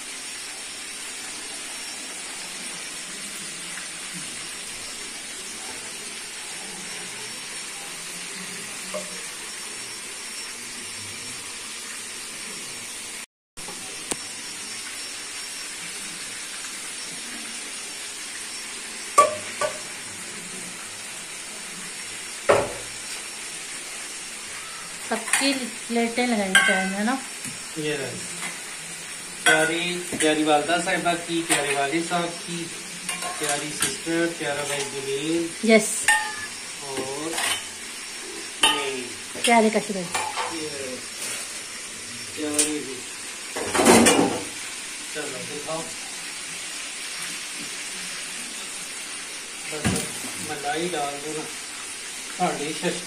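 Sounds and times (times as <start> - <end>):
food deep-frying in oil: 0.0 - 53.0
utensil knocking against pan: 19.2 - 19.8.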